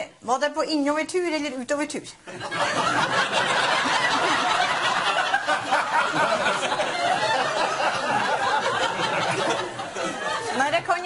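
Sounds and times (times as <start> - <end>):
audience laughing: 2.3 - 10.9.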